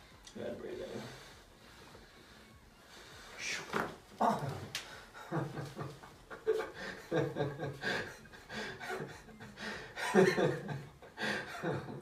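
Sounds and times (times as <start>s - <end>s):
person laughing: 4.2s - 12.0s.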